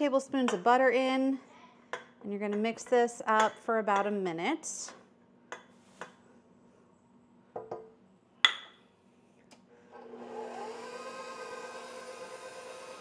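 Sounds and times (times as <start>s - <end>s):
stand mixer motor humming: 10.0s - 13.0s.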